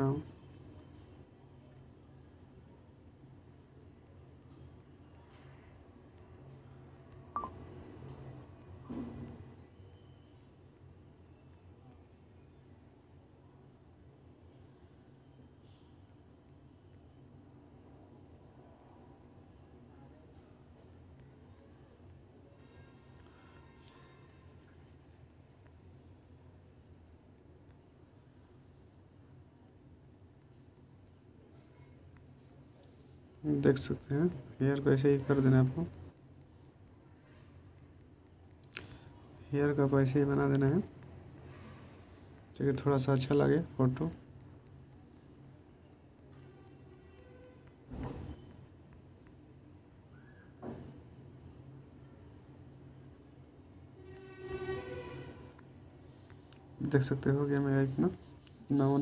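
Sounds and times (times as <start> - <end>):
cricket chirping: 0.0 - 20.0, 21.0 - 59.0
low room hum: 0.0 - 59.0
faint short high chirp: 7.4 - 7.6.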